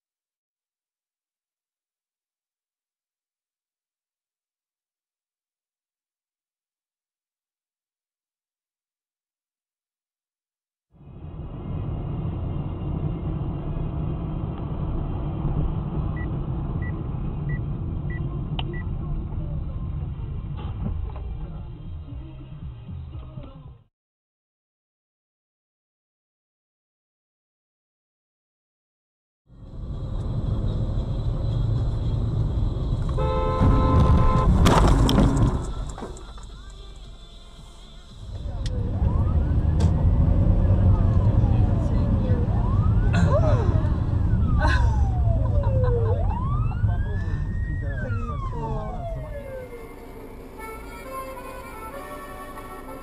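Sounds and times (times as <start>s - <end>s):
car cabin road rumble: 11.1s - 23.8s, 29.6s - 53.0s
car horn blaring: 33.0s - 35.8s, 49.7s - 53.0s
car collision crunch and clatter: 33.6s - 36.7s.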